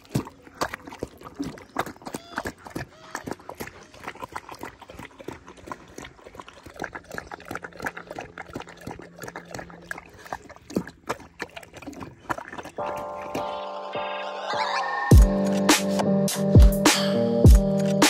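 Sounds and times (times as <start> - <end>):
dog chewing wet food: 0.0 - 13.6.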